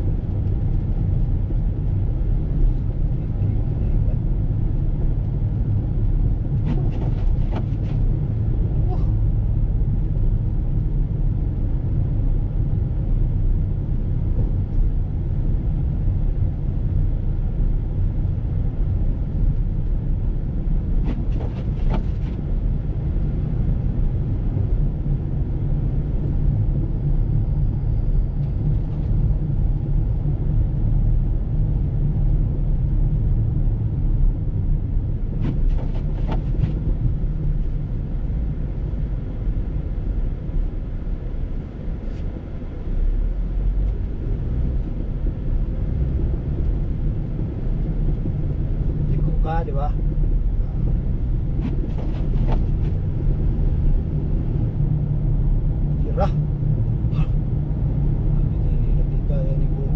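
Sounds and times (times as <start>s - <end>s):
car driving rumble: 0.0s - 59.9s.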